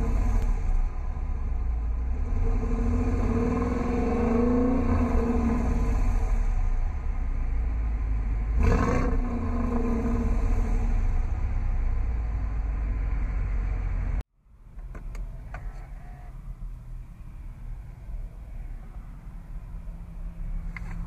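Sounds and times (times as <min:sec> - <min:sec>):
engine revving: 0:00.0 - 0:14.2.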